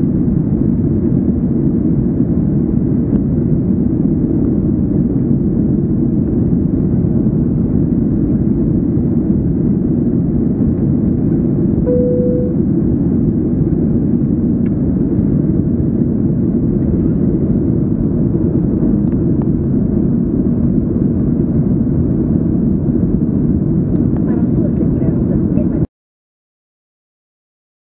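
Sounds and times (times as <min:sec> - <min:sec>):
airplane cabin roar: 0:00.0 - 0:25.9
short single tone: 0:11.9 - 0:12.7.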